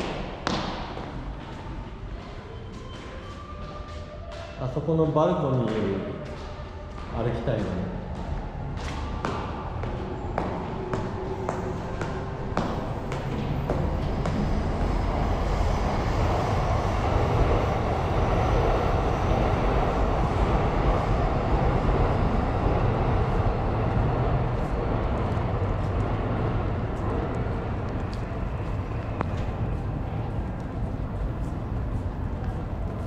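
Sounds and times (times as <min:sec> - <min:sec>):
city street noise: 0:00.0 - 0:33.0
vehicle drone: 0:07.6 - 0:33.0.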